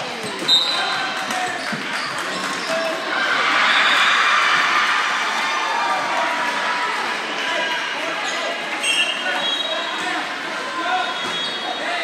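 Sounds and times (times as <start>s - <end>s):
crowd cheering and shouting: 2.6s - 12.0s.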